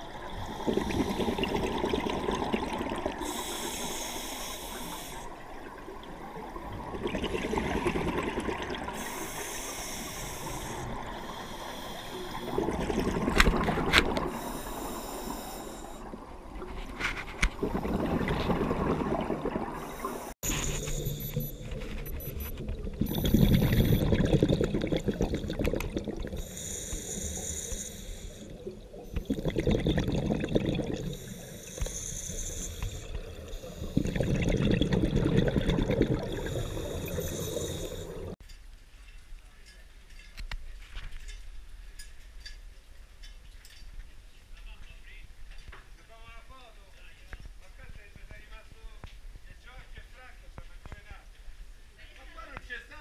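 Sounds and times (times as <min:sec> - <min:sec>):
exhaust bubbles rushing: 0:00.0 - 0:03.3, 0:06.5 - 0:09.0, 0:12.4 - 0:14.3, 0:17.6 - 0:19.9, 0:22.0 - 0:26.4, 0:28.6 - 0:31.2, 0:33.0 - 0:37.2
regulator inhale hiss: 0:03.2 - 0:05.4, 0:08.9 - 0:12.6, 0:14.3 - 0:16.1, 0:19.8 - 0:21.3, 0:26.3 - 0:28.6, 0:31.0 - 0:34.2, 0:36.2 - 0:38.4.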